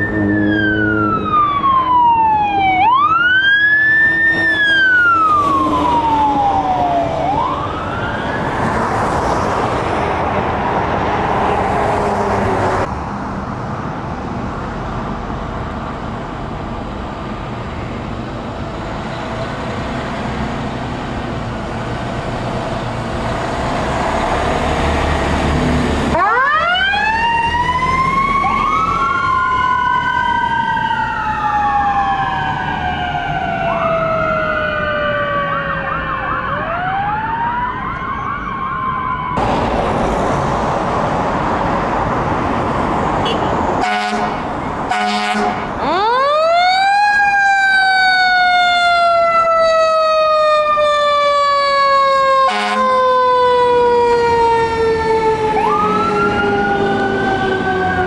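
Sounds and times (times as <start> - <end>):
yelping siren: 0.0 - 8.9, 26.1 - 39.4, 44.9 - 58.0
wailing siren: 0.0 - 12.9, 24.0 - 39.6, 43.8 - 58.0
road traffic noise: 0.0 - 58.0.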